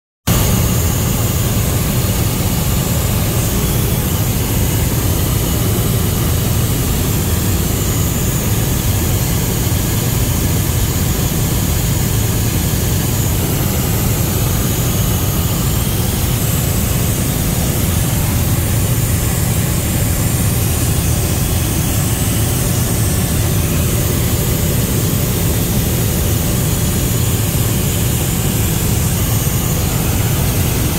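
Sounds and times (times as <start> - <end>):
faint high whine: 0.3 - 30.9
helicopter engine and rotor drone: 0.3 - 30.9.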